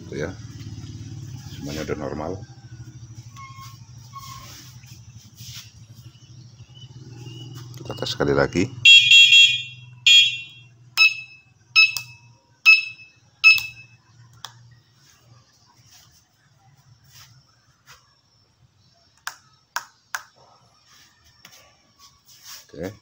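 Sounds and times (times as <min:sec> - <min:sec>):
electronic beeper pings: 0:08.9 - 0:14.0.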